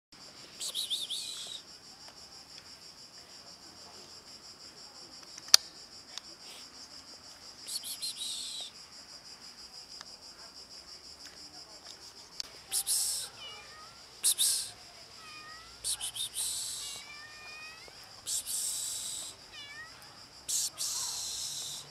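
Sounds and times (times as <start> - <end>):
insects chirring: 0.2 - 21.9
high chirping calls: 0.5 - 1.6, 7.7 - 8.7, 12.7 - 21.9.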